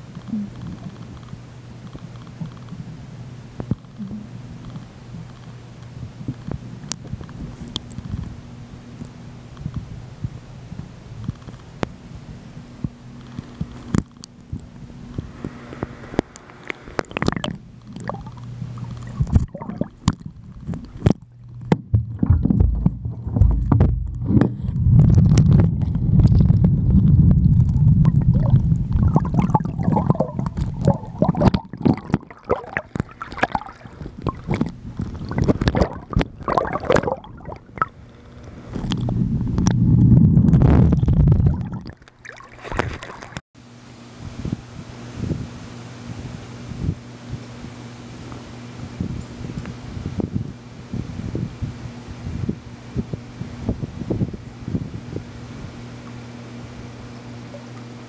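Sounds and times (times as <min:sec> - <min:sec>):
muffled underwater gurgling: 0:00.0 - 0:01.2, 0:02.3 - 0:04.6, 0:14.5 - 0:43.4
low steady hum: 0:00.0 - 0:58.0.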